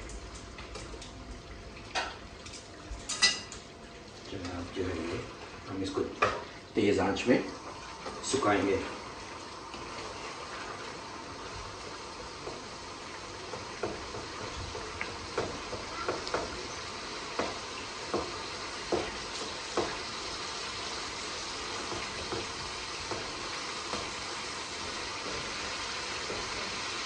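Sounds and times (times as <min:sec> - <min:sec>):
tomatoes sizzling in a pan: 0:03.0 - 0:03.6, 0:04.3 - 0:27.0
spatula knocking against pan: 0:15.4 - 0:16.5.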